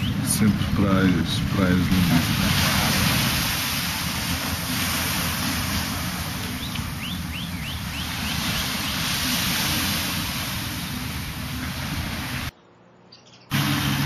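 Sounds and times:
bird chirping: 0:00.0 - 0:00.4, 0:06.5 - 0:09.2, 0:12.5 - 0:14.0
waves washing on beach: 0:00.0 - 0:12.5, 0:13.5 - 0:14.0
wind buffeting microphone: 0:00.0 - 0:12.5.

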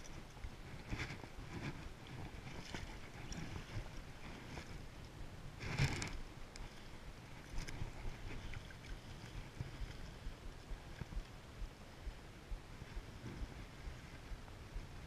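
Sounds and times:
river water flowing: 0:00.0 - 0:15.0
wind buffeting microphone: 0:07.0 - 0:15.0.

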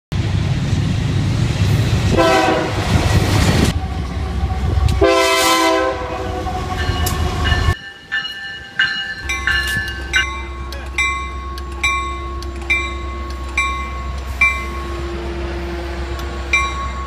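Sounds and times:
diesel locomotive engine rumbling: 0:00.1 - 0:17.0
locomotive horn: 0:02.1 - 0:03.0, 0:03.7 - 0:07.8, 0:14.6 - 0:16.6.

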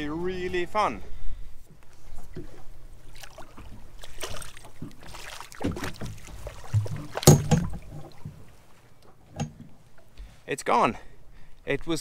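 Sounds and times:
water splashing: 0:02.0 - 0:10.2
knocks on a boat: 0:06.8 - 0:08.4.

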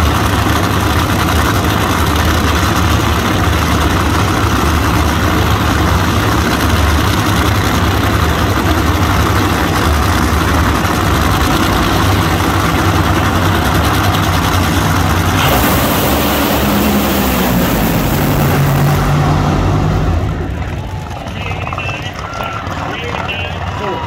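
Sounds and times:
supercharged engines revving: 0:00.0 - 0:23.5
race cars launching at full throttle: 0:00.2 - 0:24.0.

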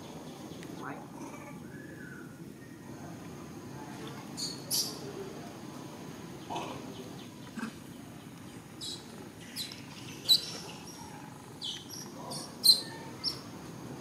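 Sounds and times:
low outdoor hum: 0:00.0 - 0:14.0
high-pitched chirping calls: 0:04.4 - 0:05.0, 0:08.8 - 0:13.5.

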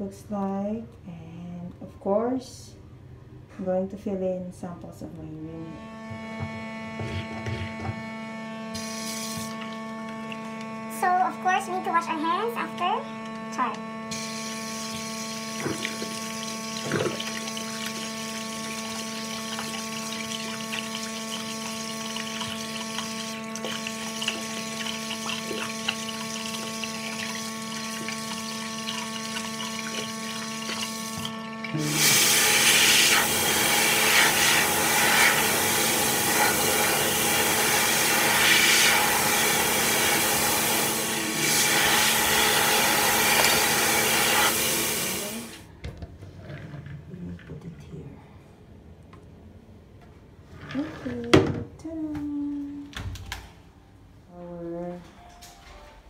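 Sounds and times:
steady hum: 0:00.9 - 0:46.2
tap water splashing into basin: 0:15.6 - 0:31.7.

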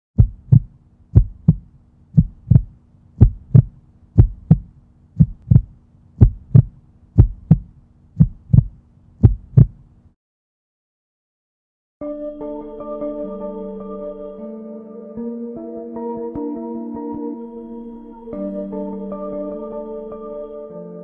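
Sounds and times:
heartbeat double thumps: 0:00.2 - 0:09.8.

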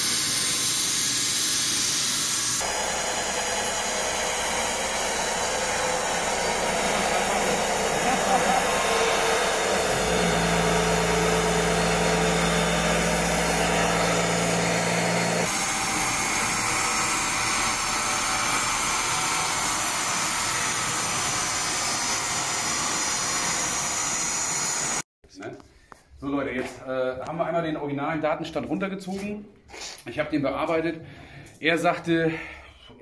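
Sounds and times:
diesel engine on dynamometer: 0:02.6 - 0:20.0.

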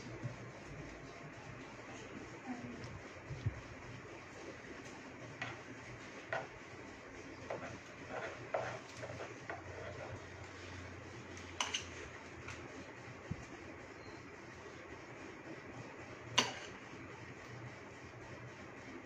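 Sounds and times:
steady low hum: 0:00.0 - 0:19.0
palette knife scraping metal: 0:07.5 - 0:10.2, 0:16.4 - 0:16.8.

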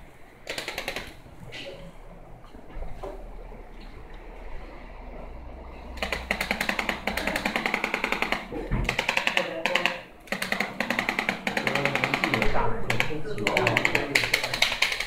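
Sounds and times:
adjusting gun rapidly tapping: 0:00.5 - 0:01.2, 0:06.0 - 0:15.0.

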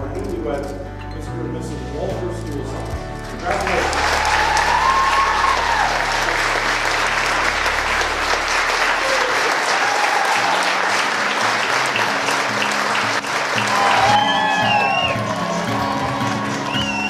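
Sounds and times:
music of low notes: 0:00.0 - 0:09.5
congregation applauding: 0:03.3 - 0:17.0.

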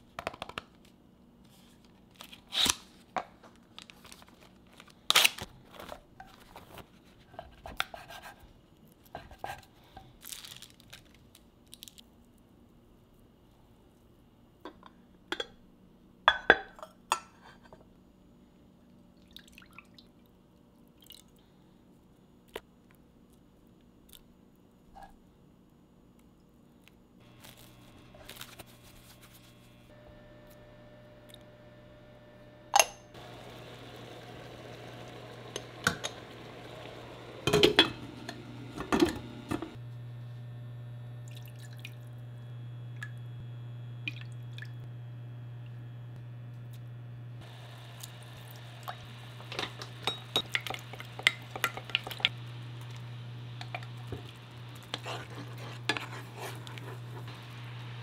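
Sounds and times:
low appliance hum: 0:21.4 - 0:58.0
dishes and utensils clinking: 0:37.4 - 0:39.8, 0:48.9 - 0:52.3.

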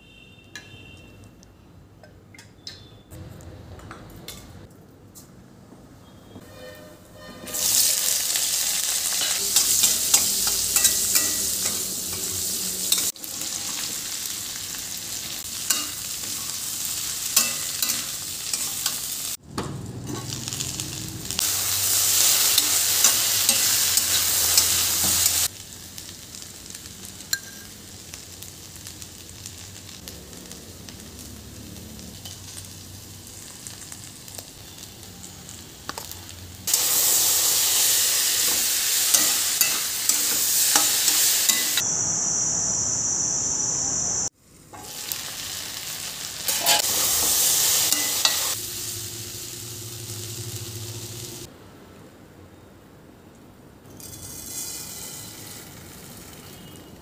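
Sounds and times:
spatula scraping pan: 0:06.4 - 0:08.2, 0:46.5 - 0:48.6
vegetables sizzling in oil: 0:07.5 - 0:51.5, 0:54.0 - 0:57.0.

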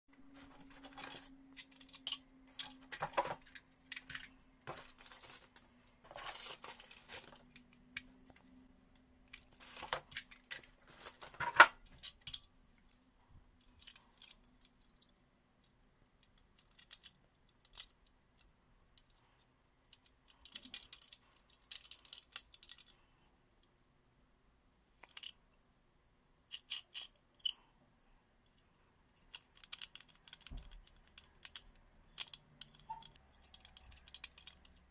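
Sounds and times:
metal parts and tools rattling: 0:00.3 - 0:08.4, 0:09.2 - 0:12.5, 0:13.6 - 0:15.2, 0:16.2 - 0:18.0, 0:19.9 - 0:23.0, 0:25.0 - 0:25.4, 0:26.5 - 0:27.6, 0:29.2 - 0:34.9.

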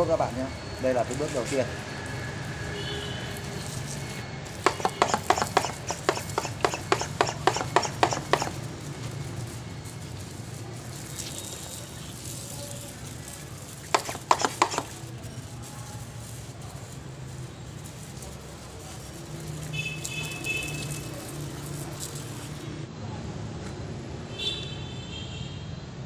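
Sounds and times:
pump sprayer clicking: 0:04.5 - 0:22.6.

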